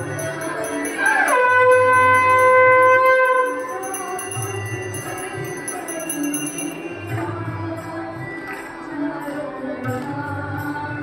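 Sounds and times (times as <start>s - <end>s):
conch shell blown: 0.0s - 6.7s
small hand bell ringing rapidly: 0.0s - 7.5s.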